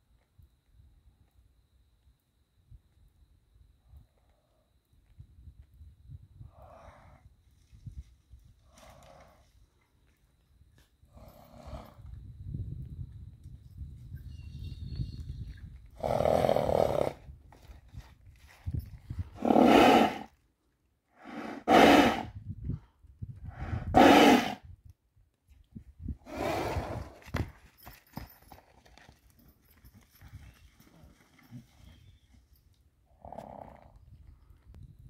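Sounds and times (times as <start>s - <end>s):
horse snorting loudly: 16.0s - 17.2s, 19.4s - 20.3s, 21.2s - 22.3s, 23.7s - 24.6s, 26.3s - 27.1s.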